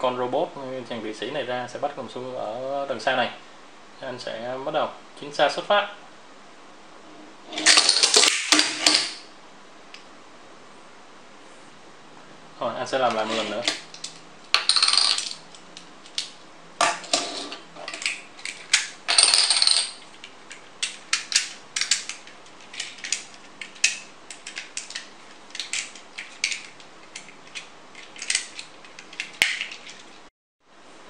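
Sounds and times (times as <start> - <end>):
plastic toy clicks and clatters: 20.1 - 30.2.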